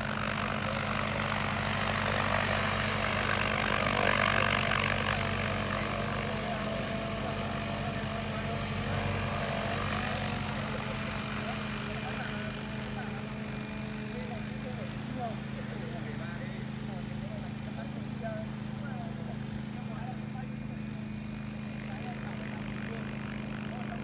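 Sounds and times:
drone rotors humming: 0.0 - 16.1.

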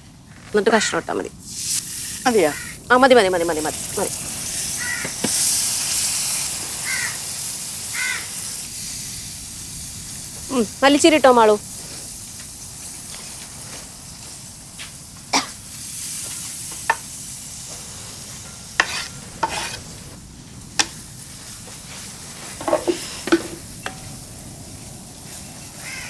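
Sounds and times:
curry sizzling in a metal pan: 1.4 - 26.0
wooden spatula scraping a pan: 18.2 - 20.2, 22.4 - 24.0.

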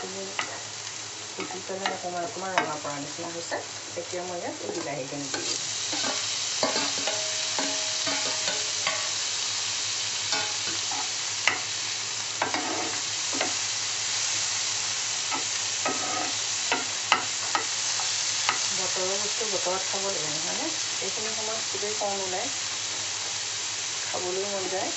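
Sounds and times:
vegetables sizzling in a frying pan: 0.0 - 24.9
spatula scraping a pan: 4.7 - 9.2, 10.3 - 11.7, 12.4 - 13.6, 15.3 - 18.7.

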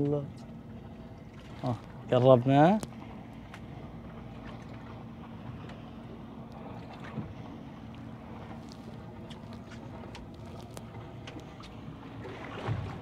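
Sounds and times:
boat engine running: 0.0 - 13.0
wind: 0.0 - 13.0
water wash: 6.5 - 13.0.

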